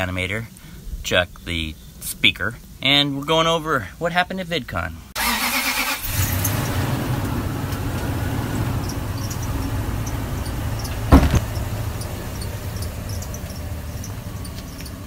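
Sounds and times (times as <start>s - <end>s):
truck engine rumbling: 5.2s - 15.0s
sharp double thump: 11.0s - 11.6s.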